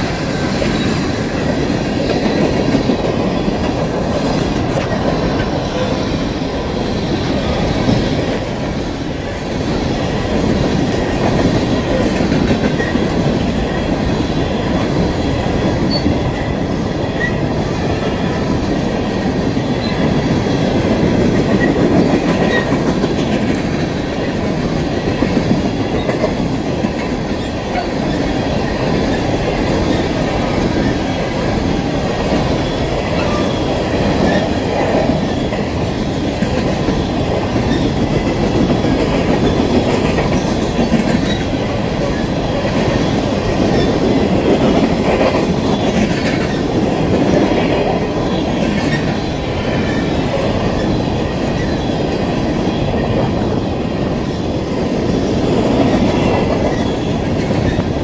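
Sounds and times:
freight train rolling on rails: 0.0 - 58.0.

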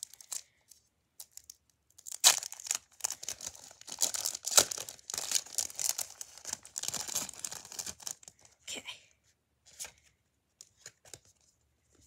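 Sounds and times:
foil wrapper tearing and crinkling: 1.2 - 8.3.

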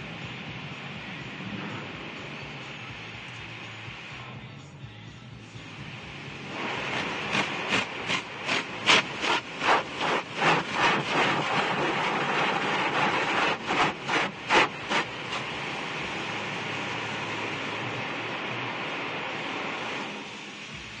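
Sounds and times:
water spray hissing: 5.5 - 21.0
wash brushes slapping: 6.5 - 15.5.

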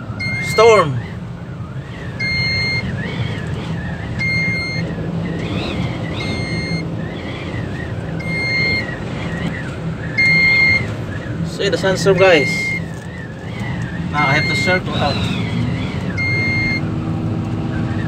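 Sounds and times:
engine hum: 0.0 - 18.0
warning beeper beeping: 0.1 - 1.1, 2.0 - 3.3, 4.0 - 7.4, 8.2 - 9.5, 10.1 - 11.0, 11.8 - 12.9, 14.1 - 16.9.

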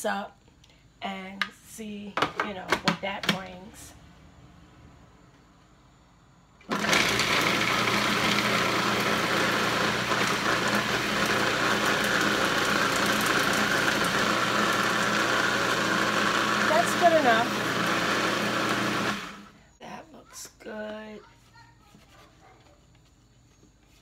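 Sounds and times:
food processor chopping: 6.6 - 19.5.

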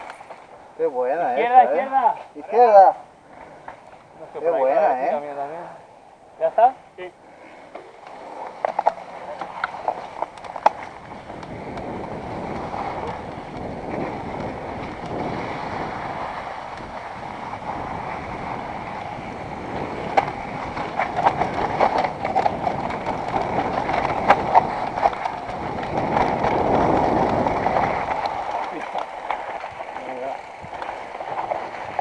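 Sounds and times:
bike knocking and rattling over bumps: 0.0 - 0.8, 7.7 - 32.0
bike tyre noise: 0.0 - 0.9, 2.1 - 4.5, 5.2 - 32.0
wind rush on microphone: 9.8 - 32.0.

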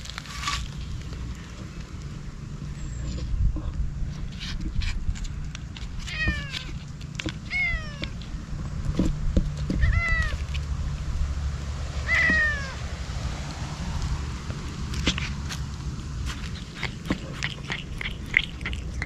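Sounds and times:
low rumble: 0.0 - 17.3
cat meowing: 6.0 - 6.7, 7.5 - 8.2, 9.8 - 10.5, 12.0 - 12.8.

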